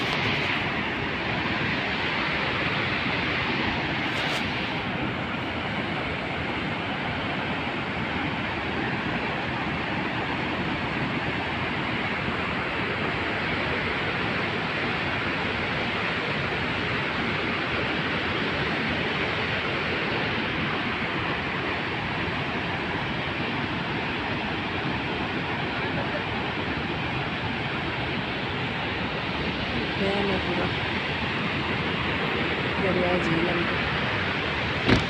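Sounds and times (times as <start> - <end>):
water gushing from dam outlet: 0.0 - 35.0.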